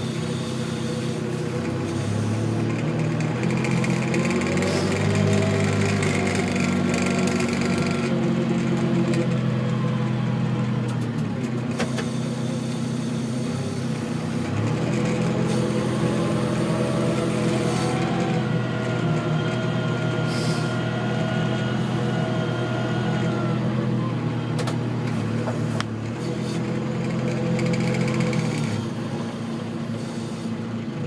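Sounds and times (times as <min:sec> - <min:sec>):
tractor engine running: 0:00.0 - 0:31.0.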